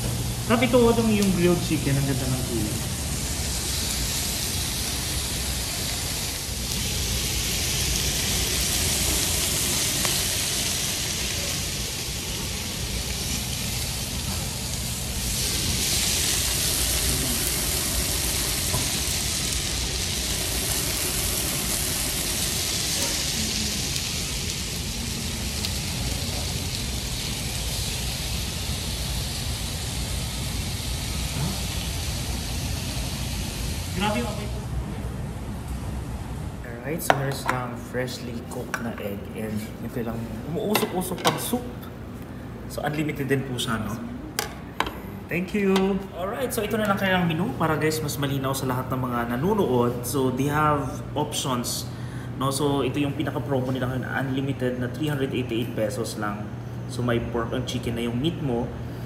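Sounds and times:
meat sizzling on a grill: 0.0s - 34.8s.

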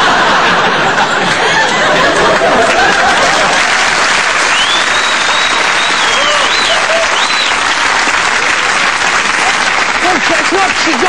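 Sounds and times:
audience laughing: 0.0s - 5.6s, 8.3s - 11.0s
audience applauding: 0.0s - 11.0s.

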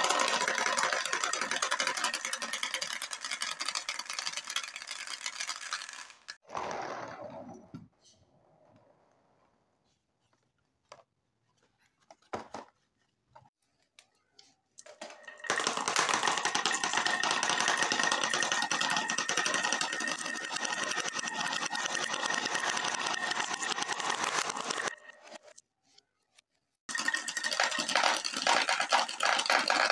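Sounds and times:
marbles rolling and clattering: 0.0s - 7.5s, 14.8s - 25.6s, 26.9s - 29.9s.

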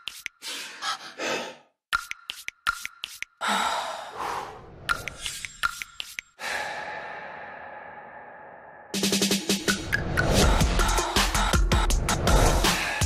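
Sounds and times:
breathy noise swells: 6.4s - 9.0s.

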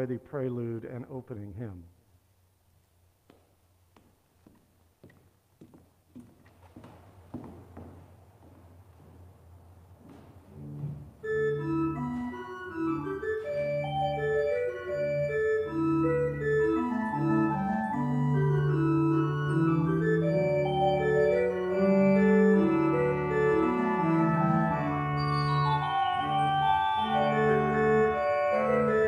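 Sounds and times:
church organ playing: 10.5s - 29.0s.

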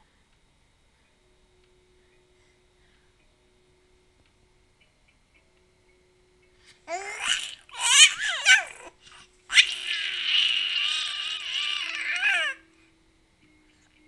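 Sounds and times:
baby squealing happily: 6.9s - 8.9s, 9.5s - 12.6s.

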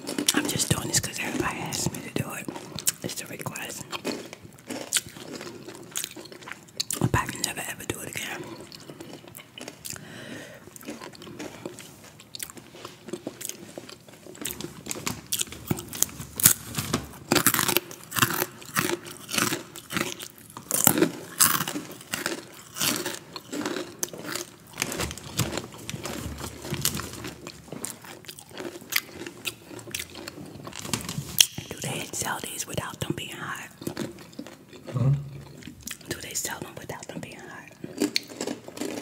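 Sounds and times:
crunchy snack chewing: 0.0s - 39.0s.

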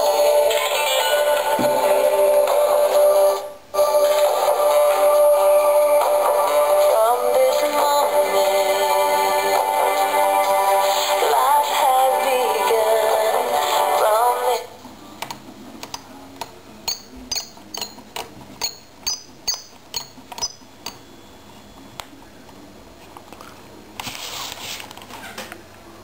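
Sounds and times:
radio playing music with singing: 0.0s - 14.9s
high tuning chirps: 18.6s - 20.7s.

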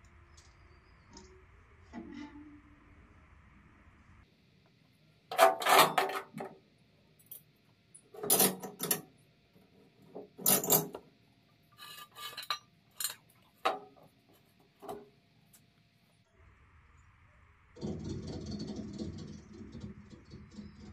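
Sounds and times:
scraping on steel: 1.1s - 2.8s, 5.3s - 6.5s, 11.7s - 14.0s.

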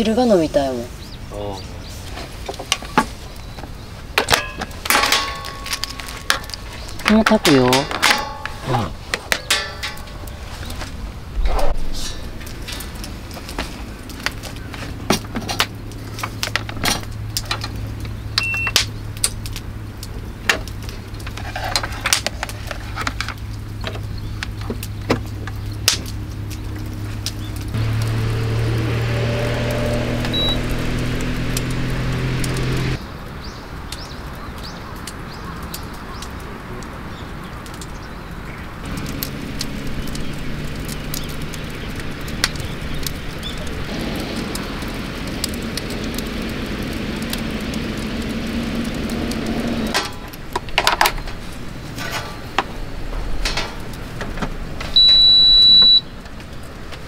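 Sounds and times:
outdoor background noise: 0.0s - 57.0s
long high cooktop beep: 30.3s - 30.6s, 55.0s - 56.0s
short high appliance beep: 55.0s - 56.0s.

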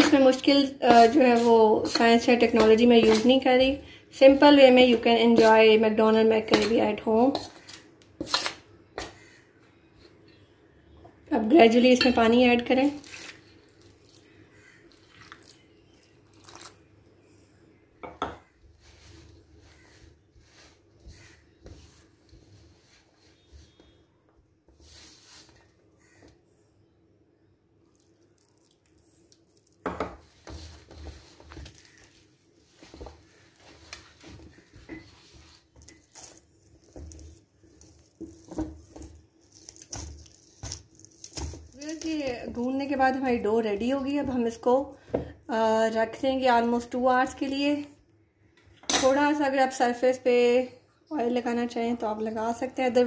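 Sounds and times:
hand kneading dough in metal bowl: 0.0s - 9.3s, 29.4s - 44.8s.

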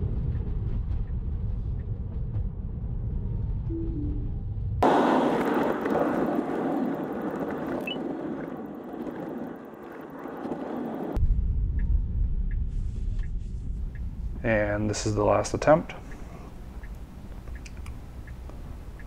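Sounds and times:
deep low rumble: 0.0s - 19.0s
tyre noise on wet road: 4.8s - 11.2s.

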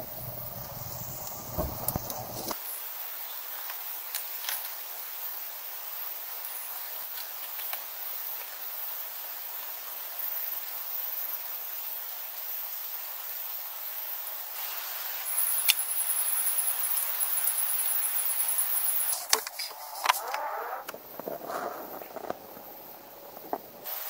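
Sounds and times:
crickets chirping: 0.0s - 24.0s.

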